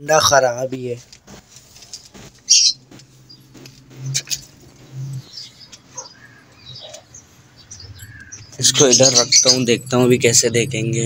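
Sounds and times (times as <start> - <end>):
high bird chirps: 2.4 - 10.5
pigeons cooing: 3.5 - 10.1.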